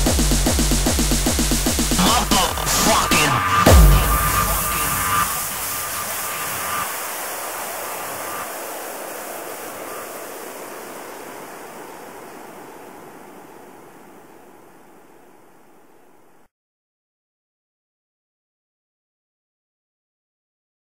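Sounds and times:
white noise hiss: 0.0 - 16.5.

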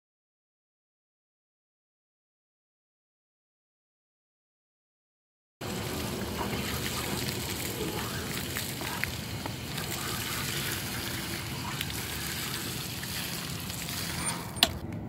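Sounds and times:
water splashing onto gravel: 5.6 - 14.8.

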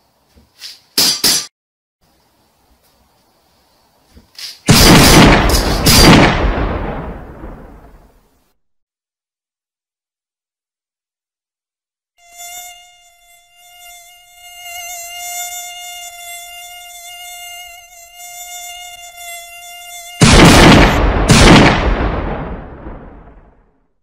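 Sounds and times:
pistol gunshots: 4.7 - 6.7, 20.2 - 22.4
mosquito whine: 12.2 - 20.4.

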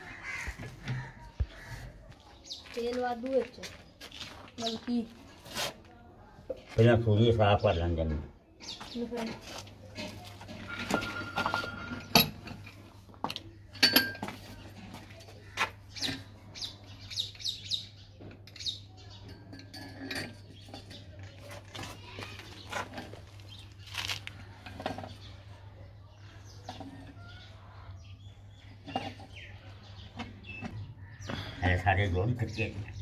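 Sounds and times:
birds chirping: 0.0 - 5.5, 6.2 - 33.0
metallic clinks of tools and pump parts: 10.0 - 14.6, 18.4 - 21.4.

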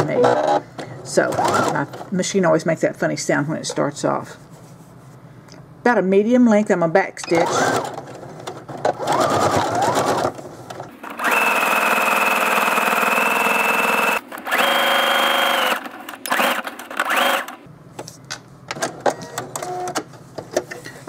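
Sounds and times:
electric sewing machine stitching: 1.2 - 1.8, 7.2 - 8.0, 8.9 - 17.7.

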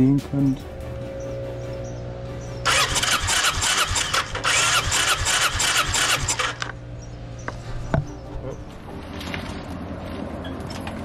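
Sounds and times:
electric starter cranking engine: 2.6 - 6.8.

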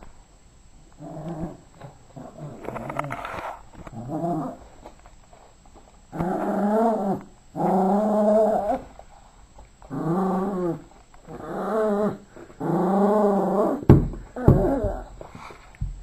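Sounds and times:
small dog growling in play: 1.0 - 4.8, 6.1 - 9.0, 9.8 - 15.2.

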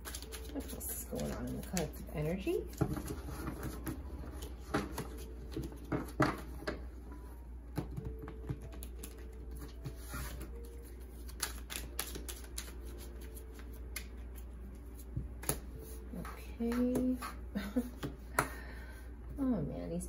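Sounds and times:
cards being shuffled: 0.0 - 6.5, 8.0 - 16.0.

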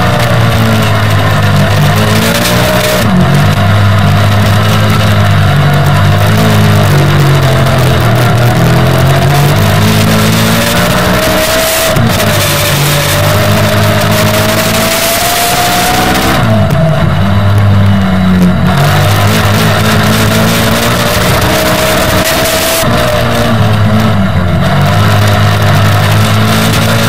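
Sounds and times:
kart engine running hard: 0.0 - 27.0
track noise: 0.0 - 27.0.

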